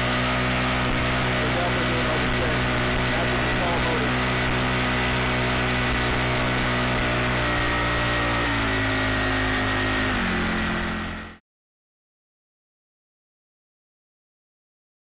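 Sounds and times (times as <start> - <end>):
four-stroke engine running: 0.0 - 11.4.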